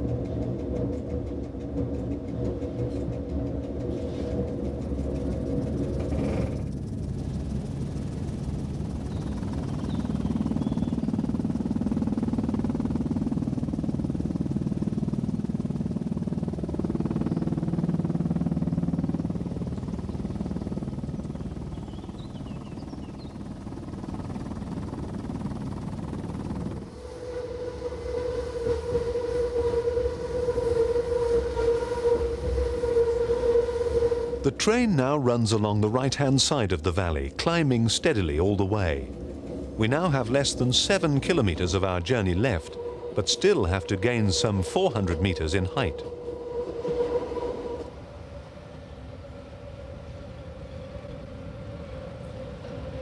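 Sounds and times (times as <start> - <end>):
electric train rumbling: 0.0 - 53.0
steady pitched tone: 26.9 - 35.5, 38.3 - 48.0.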